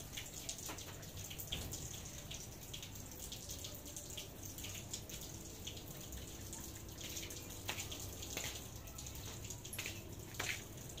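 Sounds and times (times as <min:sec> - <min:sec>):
water dripping on paving: 0:00.0 - 0:11.0.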